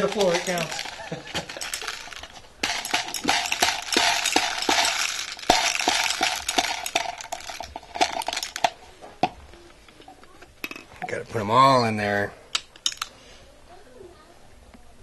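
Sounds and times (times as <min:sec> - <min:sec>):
plastic pellets rattling into magazine: 0:00.0 - 0:08.8.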